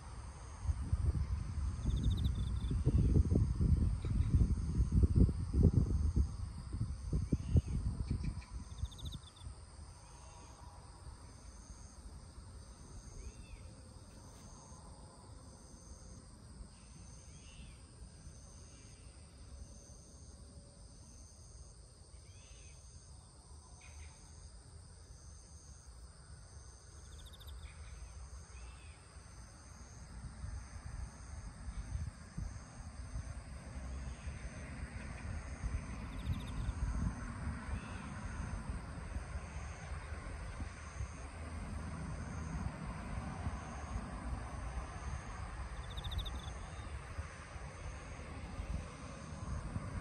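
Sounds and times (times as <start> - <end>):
high-pitched insect chorus: 0.1 - 50.0
wind buffeting microphone: 0.6 - 9.4, 35.1 - 39.4, 48.4 - 50.0.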